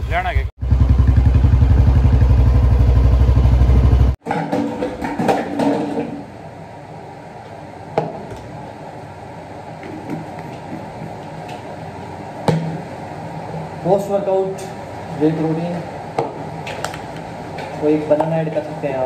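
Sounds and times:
low pulsing engine rumble: 0:00.0 - 0:04.2.

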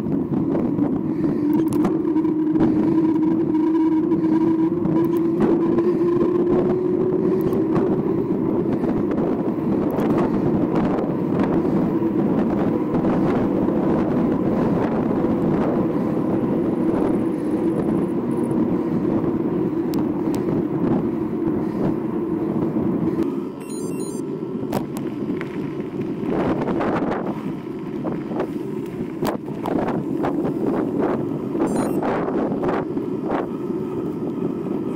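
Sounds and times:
bike tyres humming on pavement: 0:00.0 - 0:34.9
wind rushing on microphone: 0:00.0 - 0:34.9
bike clicks and knocks: 0:01.4 - 0:02.0, 0:09.8 - 0:10.3, 0:24.7 - 0:30.4
tyres rolling over gravel: 0:24.7 - 0:31.6.

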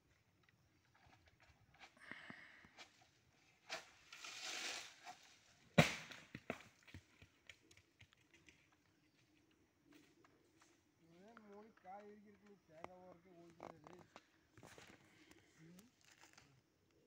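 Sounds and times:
sharp crack: 0:05.8 - 0:06.3
coconut thudding on ground: 0:05.8 - 0:07.3.

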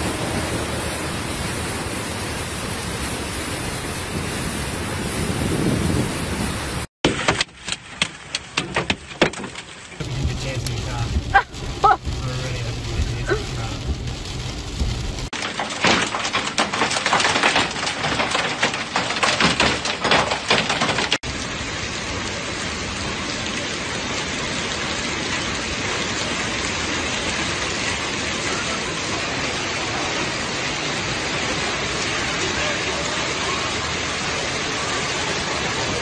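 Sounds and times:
hail and rain hissing on paving: 0:00.0 - 0:36.0
hailstones clattering on hard surfaces: 0:08.4 - 0:21.2.

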